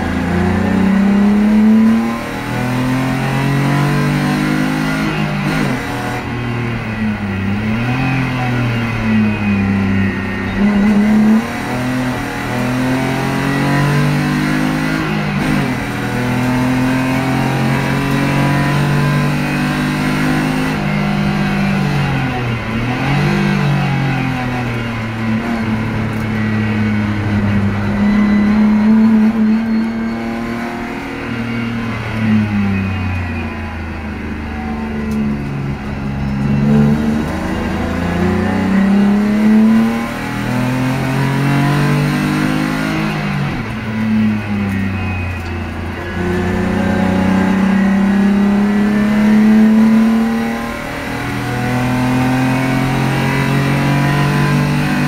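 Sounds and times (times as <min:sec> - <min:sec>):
car engine revving under acceleration: 0:00.0 - 0:55.0.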